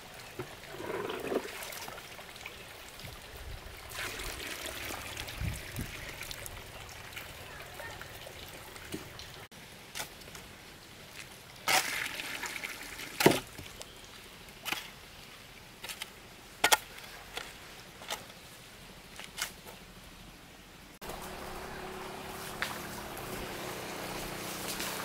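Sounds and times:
water trickling: 0.0 - 9.5
hoe chopping and scraping mortar: 13.2 - 13.6, 15.8 - 18.3.

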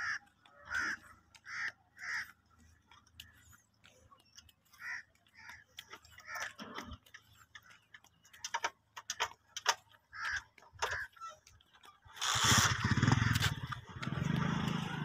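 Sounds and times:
faint bird calls: 0.0 - 8.7.

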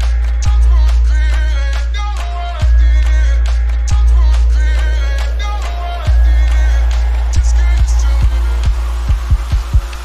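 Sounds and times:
electronic music with deep bass: 0.0 - 10.0
booming kick drums: 5.4 - 10.0.

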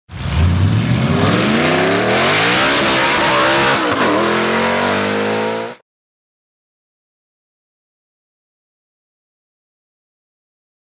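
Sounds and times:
turbocharged car engine accelerating: 0.1 - 5.8.

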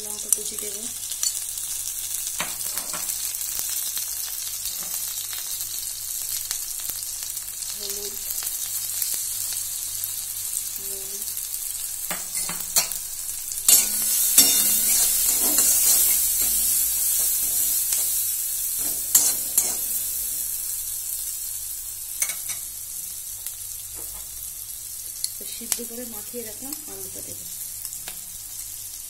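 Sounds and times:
food sizzling in hot oil: 0.0 - 29.0
metal spatula scraping pan: 13.7 - 20.6.

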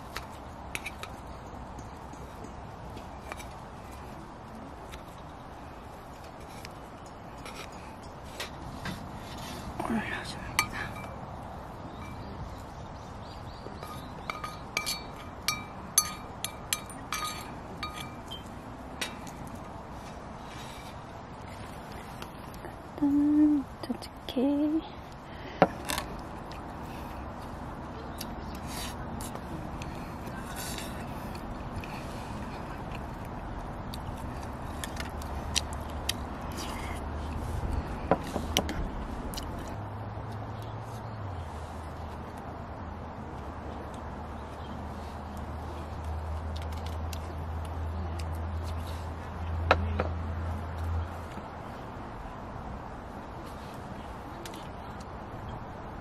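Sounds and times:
metal spoon scraping frying pan: 13.8 - 18.4.

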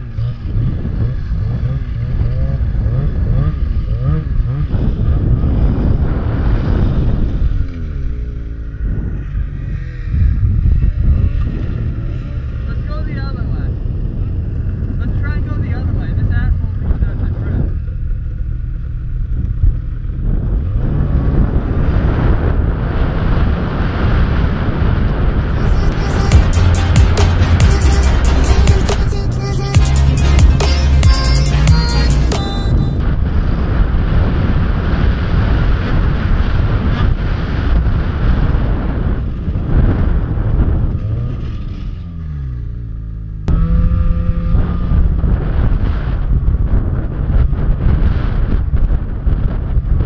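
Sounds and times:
snowmobile engine running: 0.0 - 22.8, 25.5 - 41.7
wind rushing over microphone: 0.0 - 26.4, 30.5 - 50.0.

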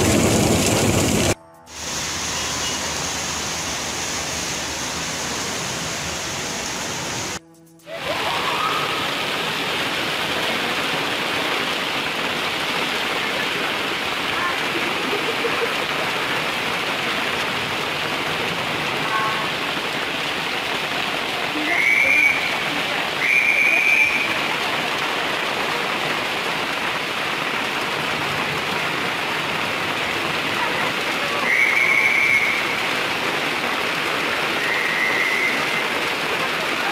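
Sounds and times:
heavy rain on a street: 0.0 - 36.9
high whistle blasts: 1.6 - 4.4, 21.7 - 22.5, 23.2 - 24.4, 31.4 - 32.8, 34.6 - 35.8.

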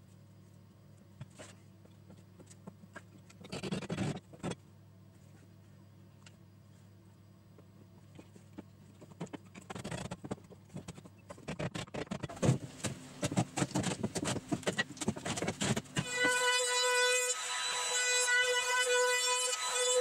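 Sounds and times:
trim router whining: 16.0 - 20.0.

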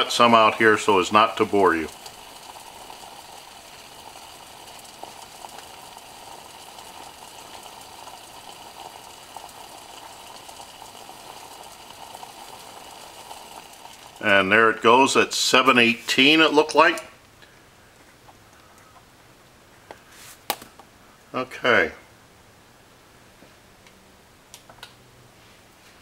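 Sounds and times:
water boiling in a pot: 0.0 - 20.7.

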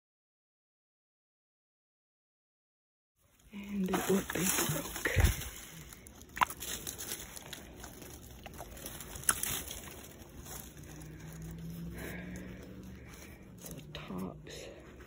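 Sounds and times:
low steady hum: 3.2 - 15.0
clicks and knocks in leaf litter: 3.4 - 14.0.

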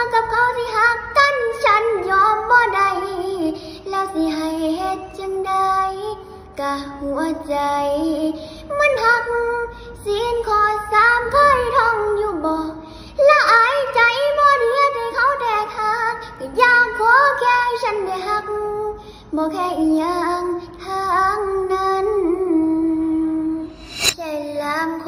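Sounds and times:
girl singing: 0.0 - 25.0
breaths: 3.6 - 3.8, 8.4 - 8.7, 12.8 - 13.2, 19.0 - 19.4.

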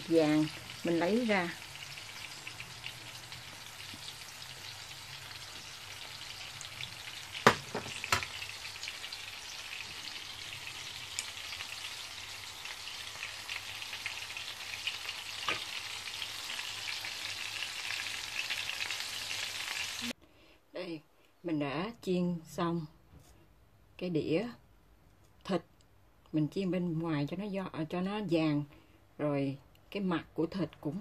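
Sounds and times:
oil sizzling in a frying pan: 0.0 - 20.2.

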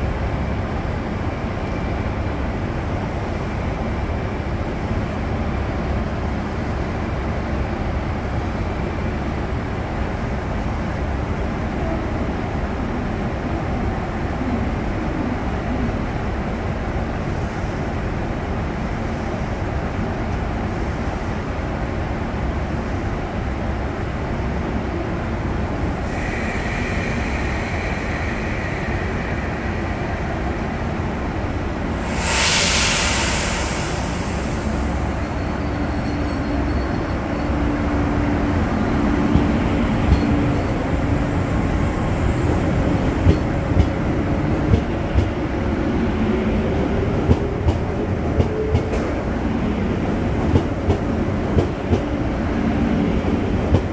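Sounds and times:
train rumbling: 0.0 - 53.9
air hissing from train: 17.1 - 19.9, 25.8 - 48.4.

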